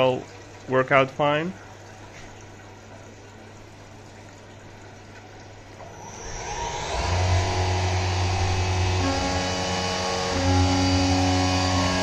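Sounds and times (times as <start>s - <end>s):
faint coolant trickle: 0.0s - 11.6s
machine running with low hum: 5.8s - 12.0s
mill spindle spinning up: 5.8s - 12.0s
coolant spraying: 5.9s - 12.0s.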